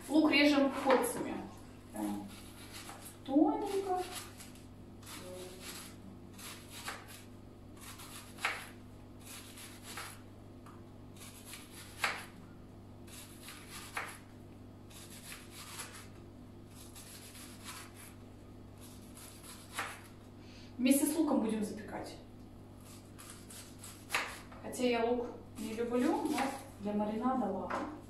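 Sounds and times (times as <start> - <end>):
knife cutting scrapes: 2.0 - 10.2, 11.2 - 12.4, 13.0 - 14.3, 14.9 - 18.2, 18.8 - 20.2, 22.8 - 24.5, 25.6 - 26.8.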